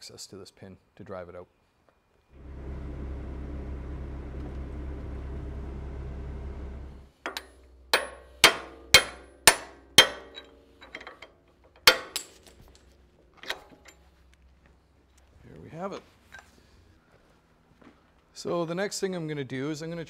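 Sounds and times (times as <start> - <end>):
diesel engine running: 2.4 - 7.1
hammer striking steel pin: 7.2 - 11.1, 11.8 - 12.4.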